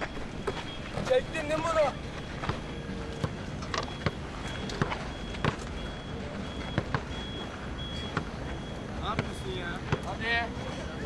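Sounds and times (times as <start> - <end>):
faint high beep: 0.0 - 10.4
outdoor background noise: 0.0 - 11.0
basketball thumping: 2.4 - 4.2, 4.8 - 5.7, 6.7 - 7.2.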